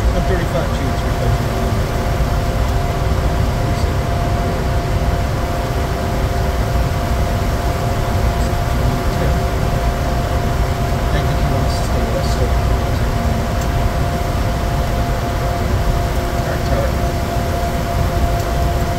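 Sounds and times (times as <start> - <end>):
heavy low rumble: 0.0 - 18.9
jet cabin airflow and engines: 0.0 - 18.9
steady hums: 0.0 - 18.9.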